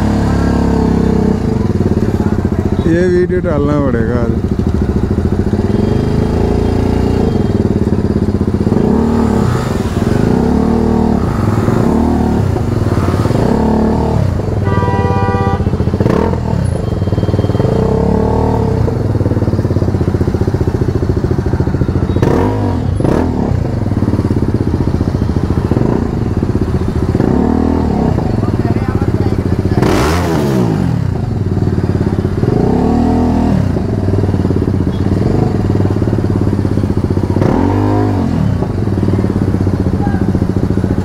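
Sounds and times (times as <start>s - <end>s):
motorcycle engine revving: 0.0s - 41.0s.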